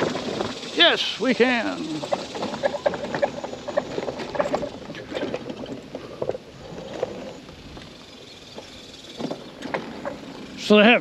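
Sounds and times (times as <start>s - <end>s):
scooter rattling over grass: 0.0s - 11.0s.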